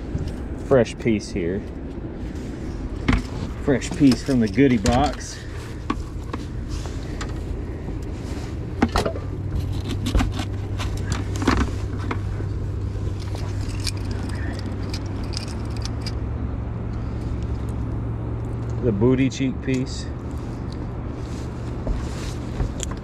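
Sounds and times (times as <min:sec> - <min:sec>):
low motor hum: 0:00.0 - 0:23.0
rain gear rustling on microphone: 0:01.4 - 0:16.1, 0:20.2 - 0:23.0.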